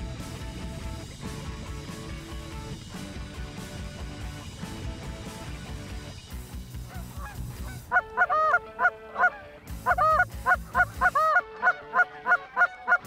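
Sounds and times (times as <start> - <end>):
geese honking: 6.8 - 13.0.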